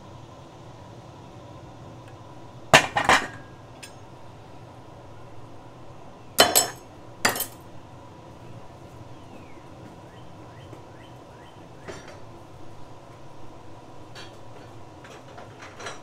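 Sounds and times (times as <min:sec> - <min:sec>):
dishes clattering on table: 0:02.8 - 0:04.0, 0:06.4 - 0:07.6, 0:14.1 - 0:16.0.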